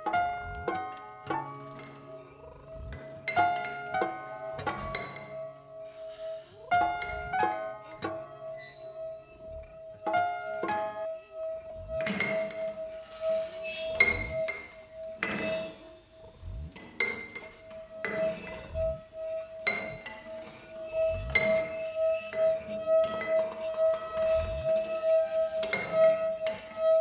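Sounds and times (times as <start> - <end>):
clinking struck notes: 0.0 - 27.0
steady held tone: 0.0 - 27.0
low falling thuds: 18.5 - 19.1.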